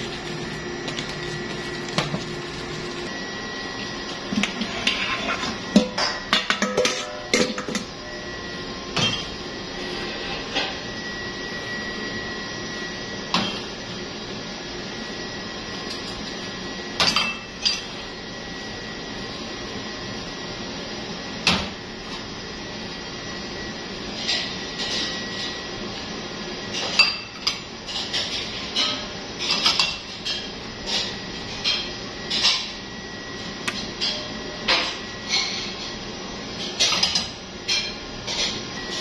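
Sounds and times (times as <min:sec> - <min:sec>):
utensils knocking steel bowl: 0:04.4 - 0:07.9.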